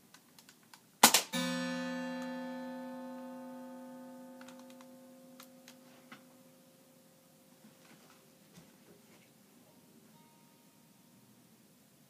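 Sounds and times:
sharp crack: 0.4 - 1.6
acoustic guitar strings ringing: 1.3 - 8.4, 10.0 - 11.1.

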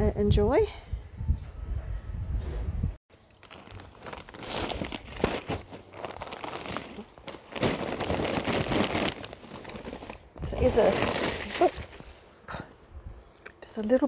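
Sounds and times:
plastic bags crinkling: 3.2 - 12.2.

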